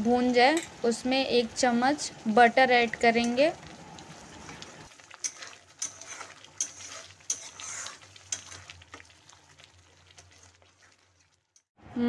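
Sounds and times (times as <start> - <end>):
frying sizzle: 0.0 - 11.7
metal spoon scraping a pan: 4.4 - 11.7.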